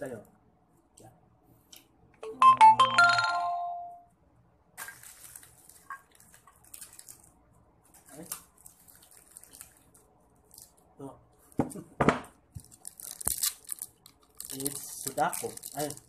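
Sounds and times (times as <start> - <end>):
crinkling of foil wrappers: 4.8 - 10.9, 12.5 - 16.0.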